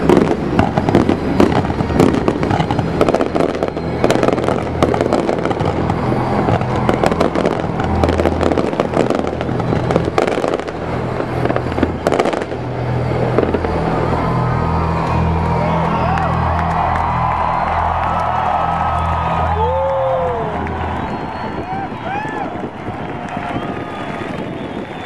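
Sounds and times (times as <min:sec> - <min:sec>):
fireworks crackling and banging: 0:00.0 - 0:25.0.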